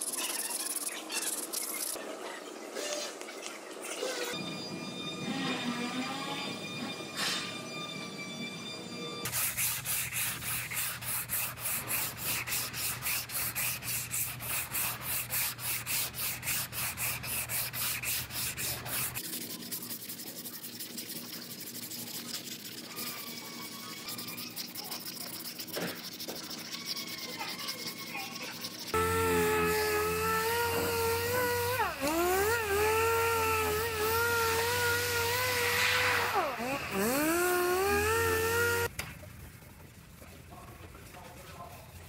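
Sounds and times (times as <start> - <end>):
hand sanding with sanding block: 9.3 - 38.9.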